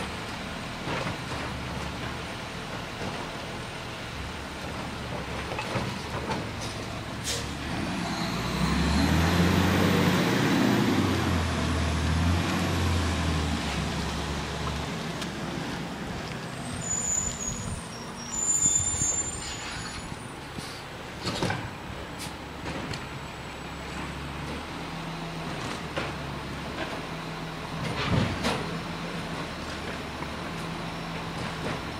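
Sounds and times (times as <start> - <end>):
garbage truck engine rumble: 0.0 - 31.9
high-pitched squeals: 16.5 - 20.3.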